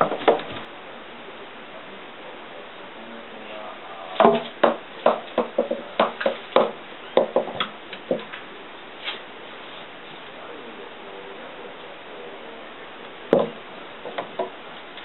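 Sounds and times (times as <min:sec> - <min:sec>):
ball knocking on wooden stairs: 0:00.0 - 0:00.7, 0:04.2 - 0:08.3, 0:13.3 - 0:14.6.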